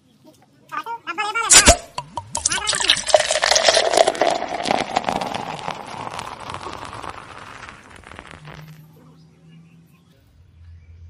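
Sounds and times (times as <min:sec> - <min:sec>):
liquid splashing and slurping: 0:01.5 - 0:08.8.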